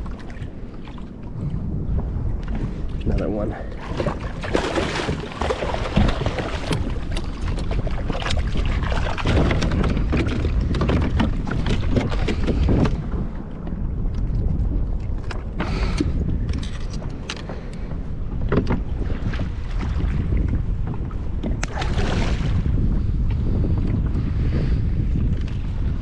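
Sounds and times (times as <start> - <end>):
wind buffeting microphone: 0.0 - 26.0
water splashing: 3.6 - 12.6, 21.6 - 22.6.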